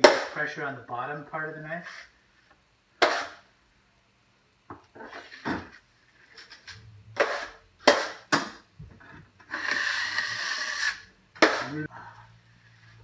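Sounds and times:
drywall knife scraping compound: 3.0 - 3.4, 6.3 - 8.3, 9.4 - 11.9.

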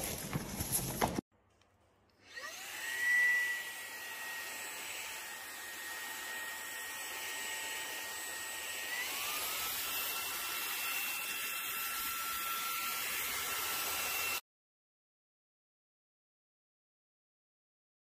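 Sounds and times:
cordless vacuum motor whine: 2.2 - 10.5.

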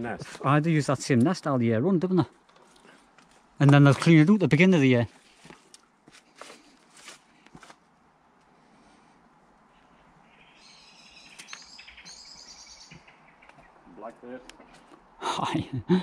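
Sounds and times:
faint outdoor background: 0.0 - 16.0
soft rustles or steps: 2.5 - 7.9
songbird twittering: 9.7 - 14.1.

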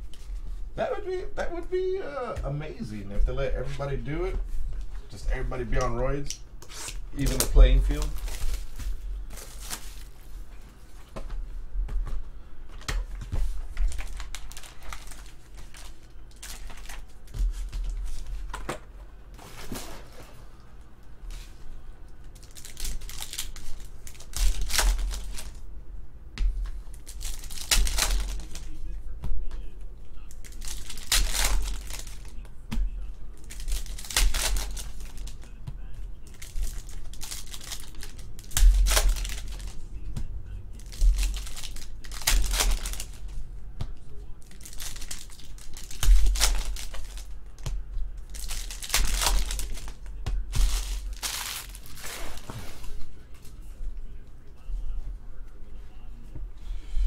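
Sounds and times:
foil wrapper crinkling and tearing: 6.2 - 10.2, 13.8 - 18.3, 22.4 - 25.6, 26.9 - 28.8, 30.3 - 32.4, 33.4 - 35.5, 36.2 - 39.9, 40.8 - 43.4, 44.4 - 47.4, 48.2 - 52.6.

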